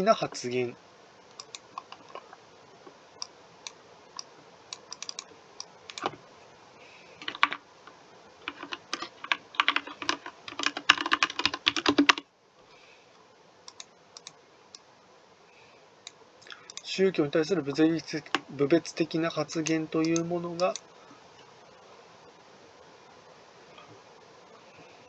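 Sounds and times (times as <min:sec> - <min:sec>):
typing on computer keyboard: 0:07.2 - 0:07.6, 0:08.4 - 0:12.2.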